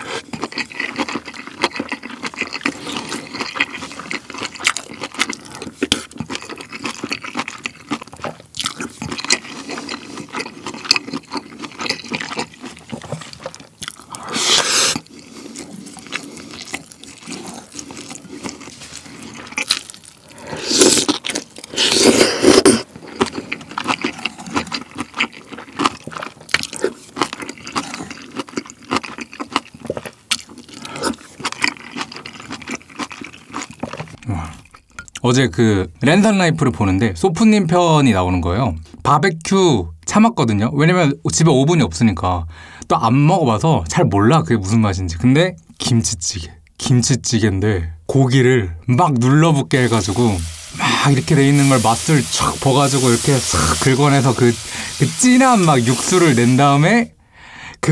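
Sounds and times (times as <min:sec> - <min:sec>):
wet chewing and mouth clicks: 0:00.0 - 0:35.2, 0:49.7 - 0:57.2
slurping broth from spoon: 0:14.1 - 0:19.6, 0:20.3 - 0:22.9.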